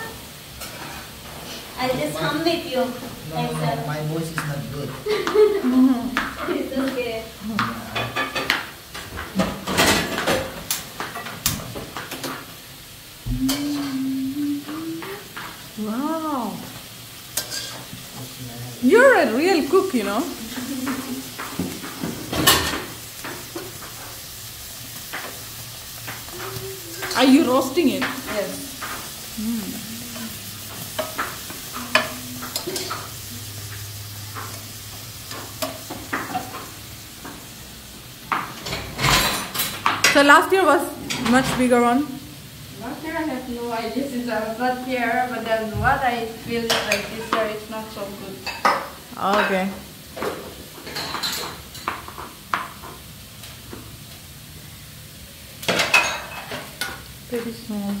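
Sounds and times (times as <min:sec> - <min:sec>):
faint sizzle: 0:00.0 - 0:58.0
person humming: 0:07.4 - 0:08.1, 0:13.3 - 0:16.6, 0:20.4 - 0:21.2, 0:26.3 - 0:27.2, 0:29.3 - 0:30.5, 0:31.7 - 0:32.6
metal utensils clattering on a pan: 0:07.9 - 0:12.5, 0:17.4 - 0:17.9, 0:19.3 - 0:24.2, 0:30.7 - 0:33.2, 0:38.3 - 0:40.3, 0:46.6 - 0:47.6, 0:48.4 - 0:53.0, 0:55.6 - 0:57.1.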